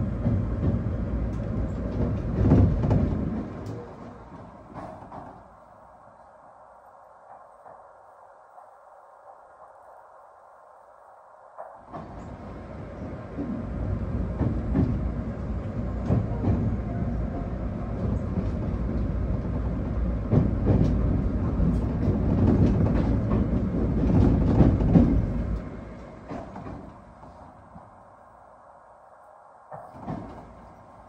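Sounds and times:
wheels clacking over rail joints: 0.0 - 5.6, 13.3 - 28.0, 29.7 - 31.0
train rumbling on rails: 0.0 - 31.0.

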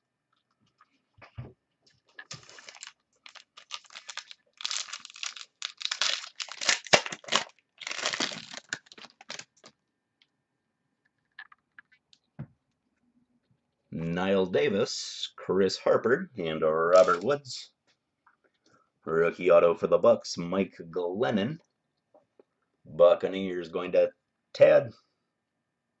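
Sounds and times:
cards and plastic packaging rustling: 2.0 - 9.8, 16.9 - 17.3.

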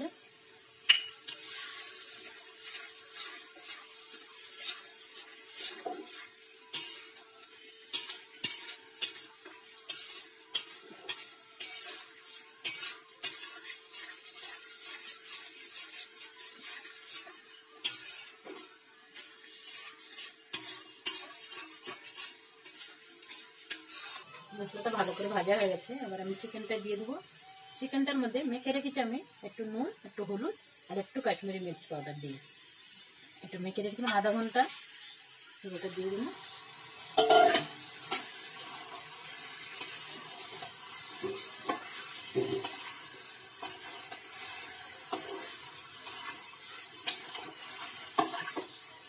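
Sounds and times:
masala sizzling: 0.0 - 49.0
spatula scraping a metal pan: 1.2 - 27.1, 36.5 - 49.0.

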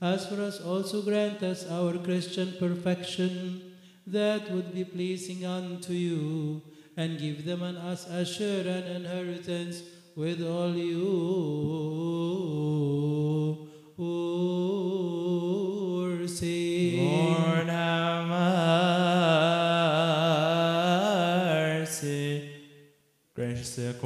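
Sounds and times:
men chanting: 16.7 - 22.4.

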